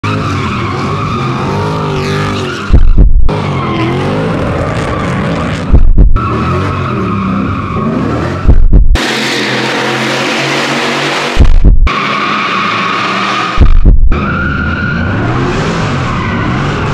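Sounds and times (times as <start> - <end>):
car engines revving: 0.0 - 16.9
loud deep boom: 2.7 - 3.3, 5.7 - 6.2, 8.5 - 9.0, 11.3 - 11.9, 13.6 - 14.1.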